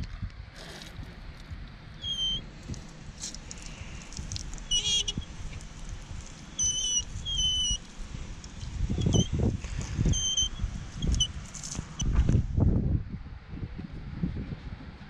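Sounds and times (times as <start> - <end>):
hose spray splashing on tyre: 0.6 - 1.0, 2.4 - 10.2
short high chirps: 2.0 - 2.4, 4.6 - 5.3, 6.5 - 7.8, 10.1 - 11.3.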